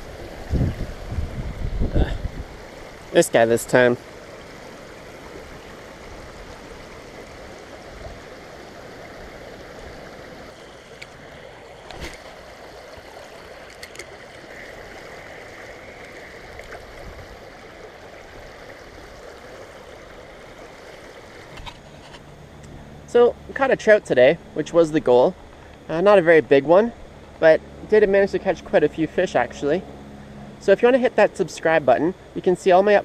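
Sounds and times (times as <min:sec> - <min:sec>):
creek water rushing over rocks: 0:00.0 - 0:22.5.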